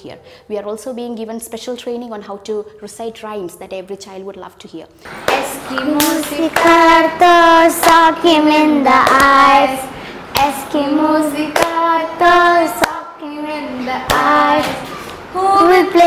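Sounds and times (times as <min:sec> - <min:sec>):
girl singing: 0:05.2 - 0:16.0.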